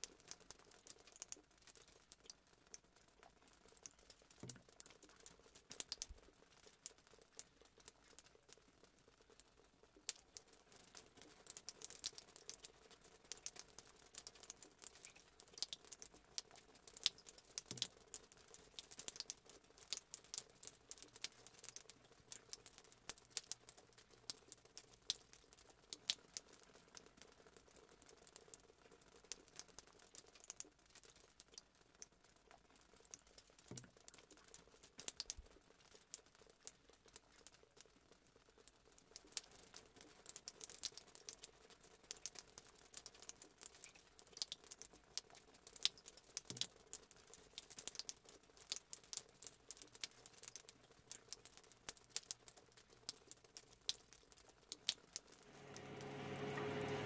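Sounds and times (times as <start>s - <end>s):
faint steady hum: 55.4s - 57.0s.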